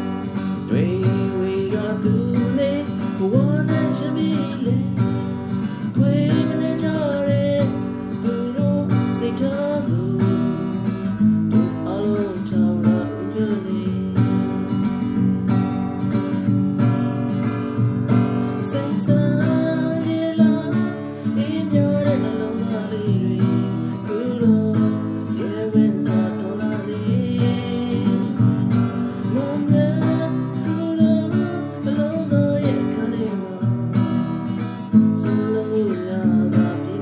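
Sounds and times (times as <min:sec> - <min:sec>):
acoustic guitar strumming chords: 0:00.0 - 0:37.0.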